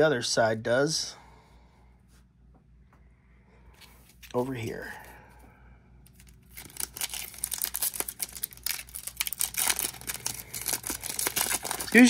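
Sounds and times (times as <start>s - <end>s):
foil wrapper tearing and crinkling: 6.1s - 12.0s.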